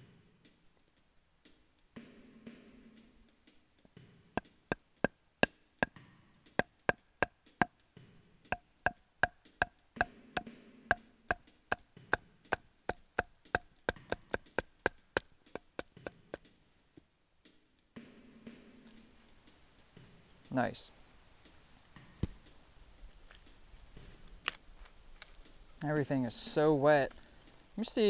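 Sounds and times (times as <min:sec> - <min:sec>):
baton striking knife spine: 0:08.5 - 0:16.4.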